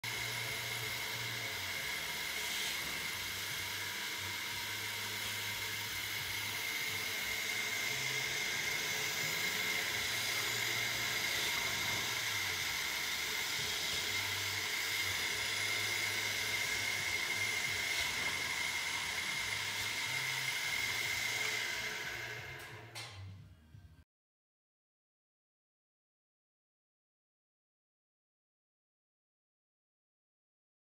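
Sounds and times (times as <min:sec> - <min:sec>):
drilling machine whine: 0:00.0 - 0:23.2.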